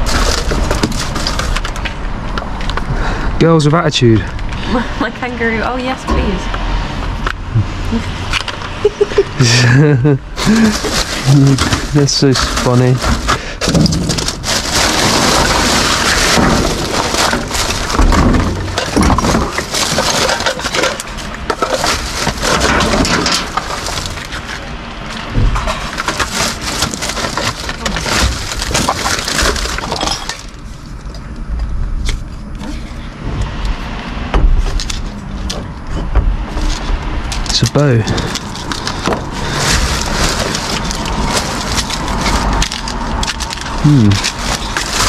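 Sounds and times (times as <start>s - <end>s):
plastic bag rustling: 0.0s - 2.6s, 8.8s - 31.1s, 36.5s - 45.0s.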